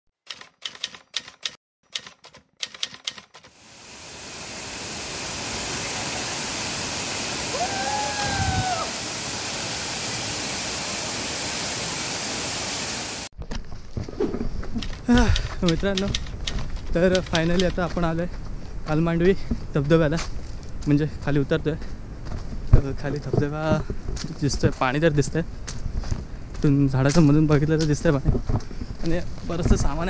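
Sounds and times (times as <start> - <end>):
typewriter keystrokes clacking: 0.2 - 3.5, 14.8 - 17.9
waterfall rushing: 3.6 - 13.3.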